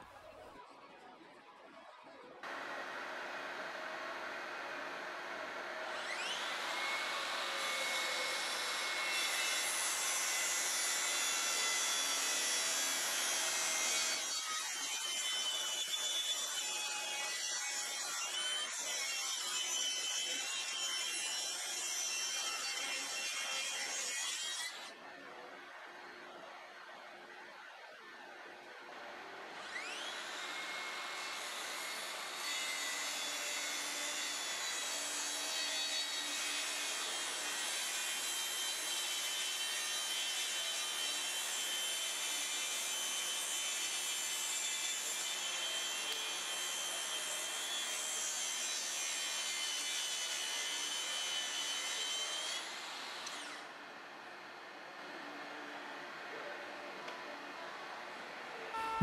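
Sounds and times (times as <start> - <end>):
track saw cutting wood: 2.5 - 25.0, 29.4 - 53.7.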